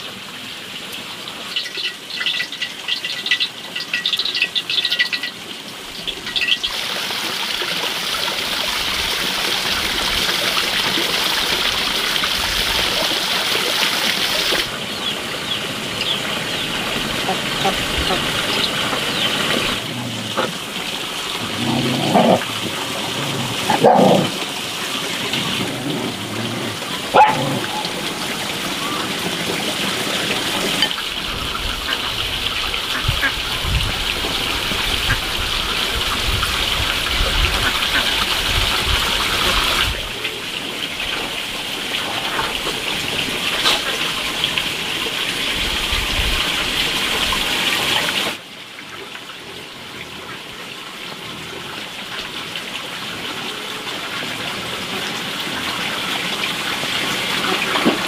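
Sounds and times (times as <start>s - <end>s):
dog barking: 23.7s - 24.3s, 27.1s - 28.0s.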